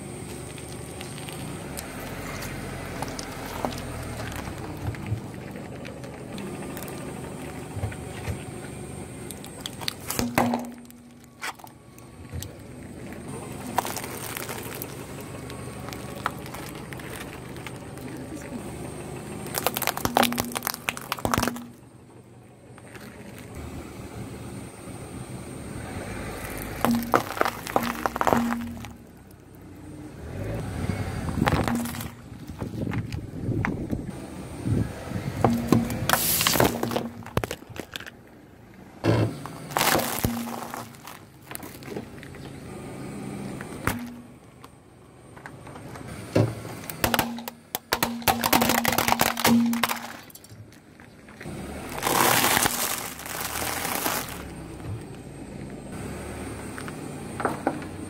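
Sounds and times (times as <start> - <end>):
acorns cracking under tyre: 0.0 - 22.1, 22.7 - 23.6, 26.0 - 30.4, 31.2 - 34.1, 35.3 - 42.7, 43.5 - 55.8
low steady car sound: 0.0 - 58.0
sharp crack: 9.2 - 12.6, 19.4 - 21.8, 26.4 - 29.4, 35.5 - 38.2, 39.4 - 42.2, 43.7 - 44.8, 46.9 - 50.6, 51.9 - 54.6
food packets crackling: 13.6 - 18.4, 39.7 - 42.0, 51.9 - 54.5.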